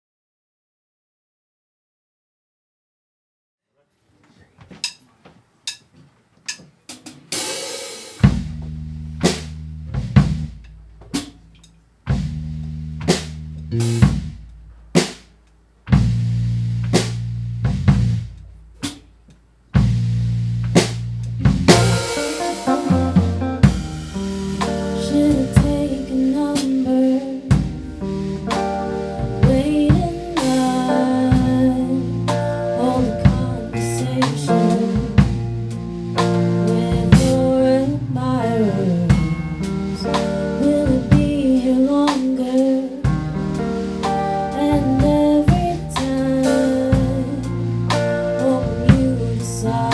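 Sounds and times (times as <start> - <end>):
drum hits with cymbals: 6.5 - 19.2, 19.8 - 37.8, 38.9 - 42.4, 43.1 - 49.9
live rock band playing: 12.1 - 14.4, 19.8 - 49.9
snare and bass drum hits: 20.7 - 24.8
woman singing: 24.6 - 27.8, 29.1 - 35.4, 36.3 - 43.2, 44.2 - 49.9.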